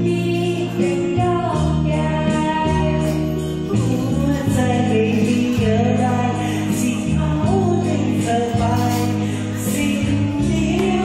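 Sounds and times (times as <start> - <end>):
amplified backing music: 0.0 - 11.0.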